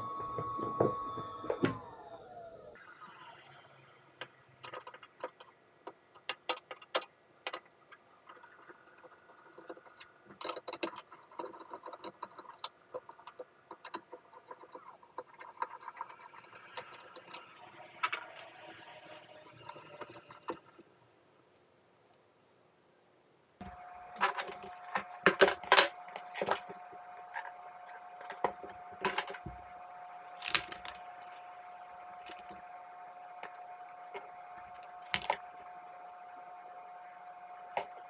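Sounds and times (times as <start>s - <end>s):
plastic scraping: 23.6s - 36.0s.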